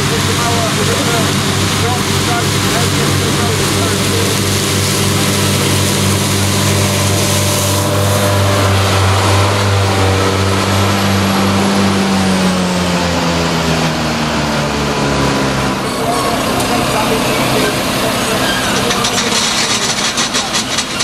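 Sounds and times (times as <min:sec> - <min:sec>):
tractor engine under load: 0:00.0 - 0:13.2, 0:14.8 - 0:21.0
disc mower cutting grass: 0:00.0 - 0:21.0
hiss: 0:00.1 - 0:08.4.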